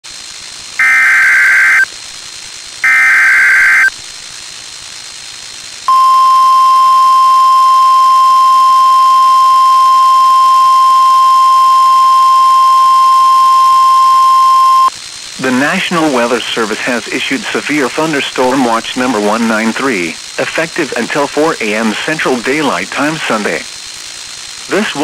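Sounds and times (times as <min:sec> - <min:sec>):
screechy warbling data bursts: 0:00.8 - 0:01.9, 0:02.8 - 0:04.0
steady warning alarm tone: 0:00.8 - 0:01.9, 0:02.8 - 0:03.9, 0:05.9 - 0:14.9.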